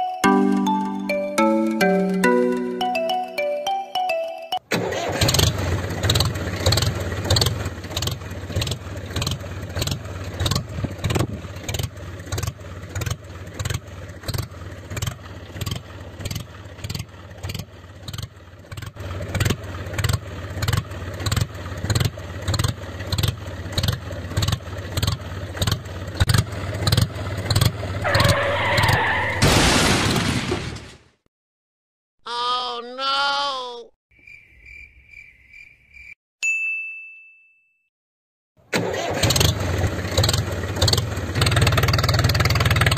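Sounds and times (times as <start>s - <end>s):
small engine running: 4.8s - 28.1s, 38.7s - 42.9s.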